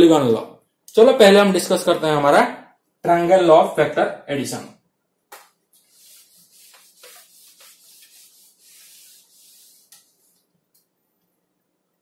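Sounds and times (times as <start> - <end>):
cloth wiping whiteboard: 5.4 - 10.5.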